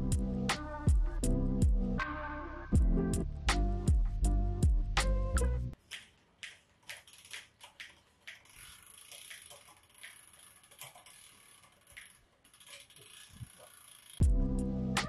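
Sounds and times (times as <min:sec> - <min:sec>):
bicycle chain running over cassette: 0:07.0 - 0:14.4.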